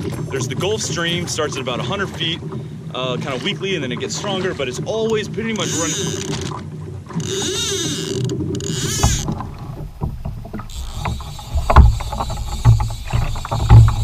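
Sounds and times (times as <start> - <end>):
water lapping against kayak: 0.0 - 14.0
knocks on kayak hull: 8.9 - 14.0.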